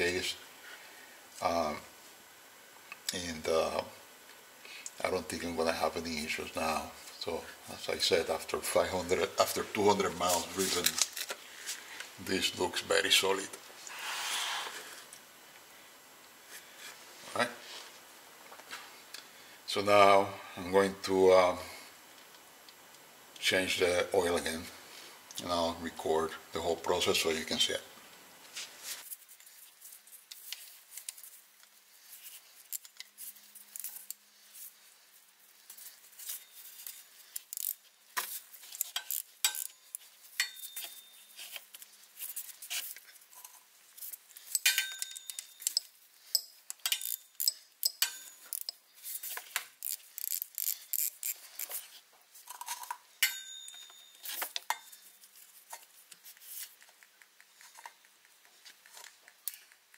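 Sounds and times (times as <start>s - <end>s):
metallic clinks of hand tools: 40.4s - 41.3s, 44.5s - 48.8s, 53.2s - 55.0s.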